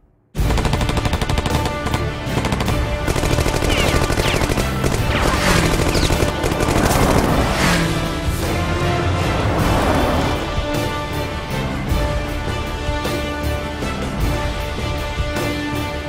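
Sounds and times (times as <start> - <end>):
action soundtrack music: 0.0 - 16.0
machine-gun fire: 0.4 - 7.5.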